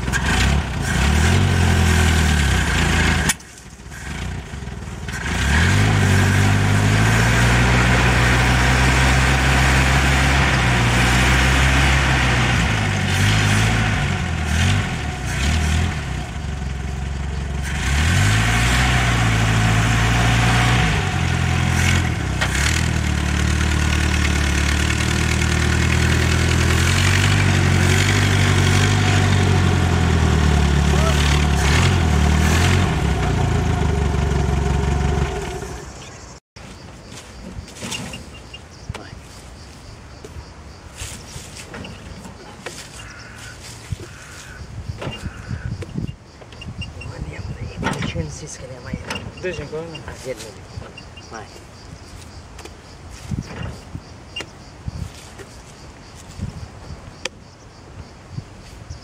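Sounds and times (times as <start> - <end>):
jeep engine revving at low speed: 0.0 - 36.4.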